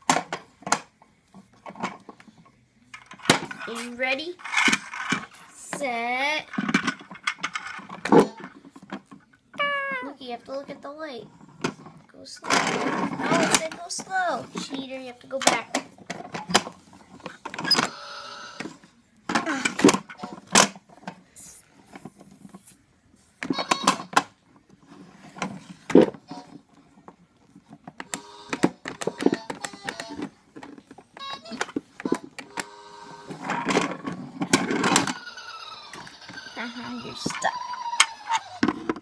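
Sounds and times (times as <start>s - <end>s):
plastic toy cars clattering on track: 6.5s - 9.2s, 11.6s - 18.0s, 23.4s - 39.0s.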